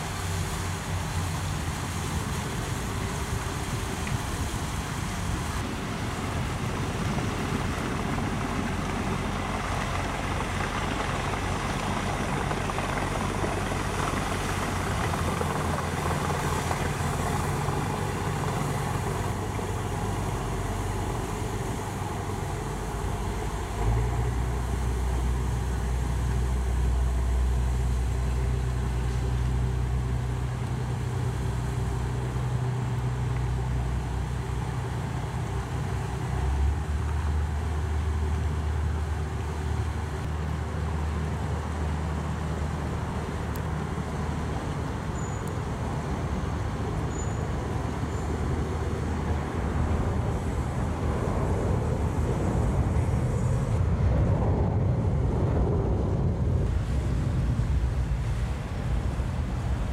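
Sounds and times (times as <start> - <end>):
boat engine drone: 0.0 - 59.9
city traffic noise: 0.0 - 59.9
deep low rumble: 49.6 - 59.9.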